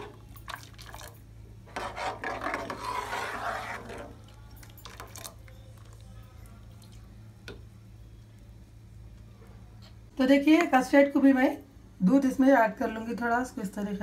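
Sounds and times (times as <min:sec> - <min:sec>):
metal ladle scraping steel pot: 0:01.7 - 0:04.2.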